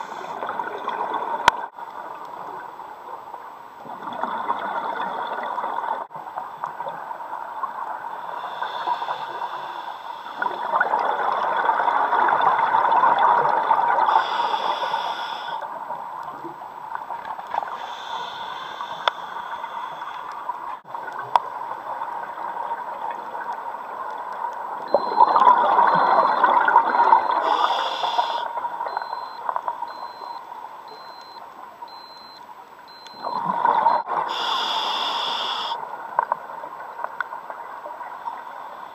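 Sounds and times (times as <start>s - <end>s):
steady underwater hiss: 0.0s - 1.0s, 6.8s - 11.4s, 13.9s - 25.4s, 26.4s - 29.1s, 33.3s - 38.9s
exhaled bubbles gurgling: 0.0s - 1.7s, 3.8s - 6.1s, 10.4s - 14.2s, 24.8s - 27.8s, 33.0s - 34.4s
regulator inhalation hiss: 8.3s - 10.6s, 14.1s - 15.6s, 17.7s - 20.3s, 27.4s - 28.5s, 34.3s - 35.8s.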